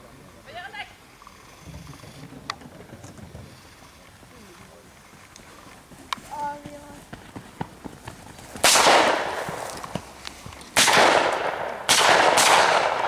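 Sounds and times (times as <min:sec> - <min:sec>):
blank revolver shots: 0:08.6 - 0:09.4, 0:10.8 - 0:13.0.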